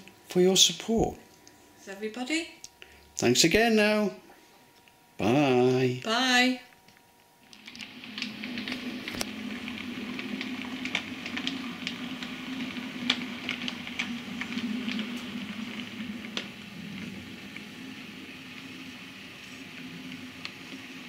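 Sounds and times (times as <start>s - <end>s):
wheels clicking on rails: 7.6s - 21.0s.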